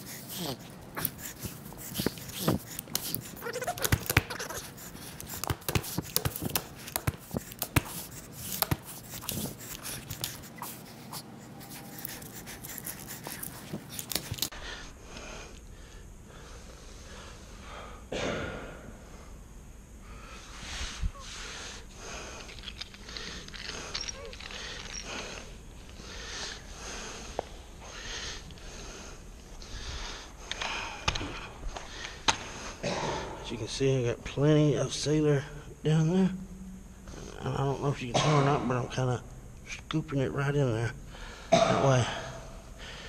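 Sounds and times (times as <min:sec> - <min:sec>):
hands rubbing carpet: 0:00.0 - 0:14.5.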